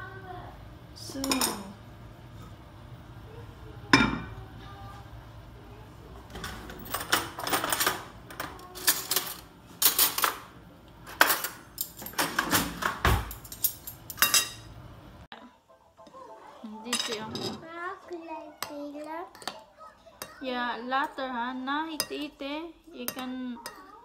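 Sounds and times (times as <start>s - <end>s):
cutlery and dishes clattering: 6.3s - 14.7s, 16.8s - 17.7s, 18.6s - 20.4s, 23.0s - 24.0s
spoons rattling in a drawer: 6.4s - 10.5s, 11.1s - 14.6s.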